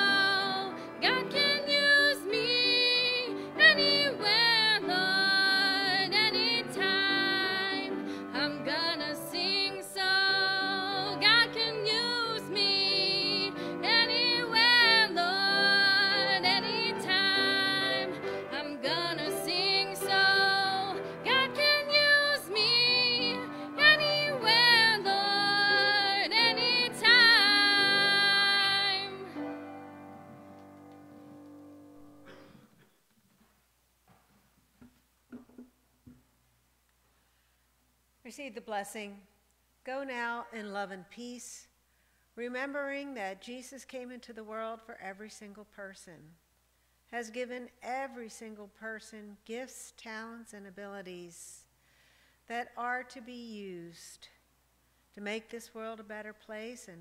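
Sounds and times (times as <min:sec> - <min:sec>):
woman singing a hymn: 0:00.0 - 0:29.5
grand piano: 0:00.0 - 0:32.8.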